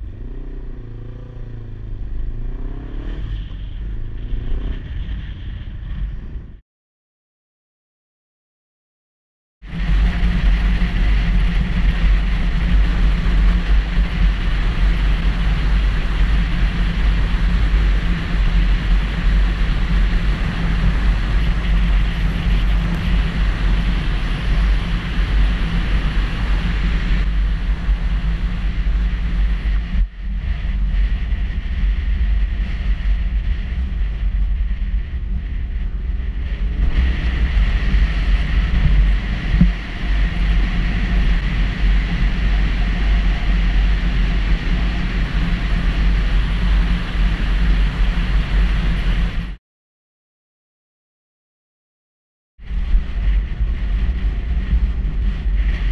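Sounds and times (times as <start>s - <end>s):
motorcycle running: 0.0s - 6.6s, 9.6s - 49.6s, 52.6s - 55.9s
wind buffeting microphone: 9.6s - 49.6s, 52.6s - 55.9s.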